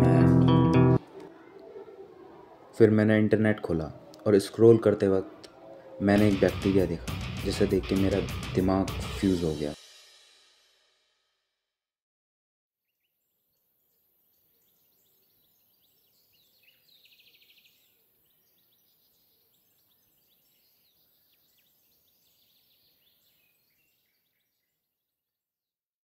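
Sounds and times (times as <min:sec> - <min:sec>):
faint birds chirping: 0:00.8 - 0:09.4, 0:12.8 - 0:25.2
bird trill: 0:12.8 - 0:24.8.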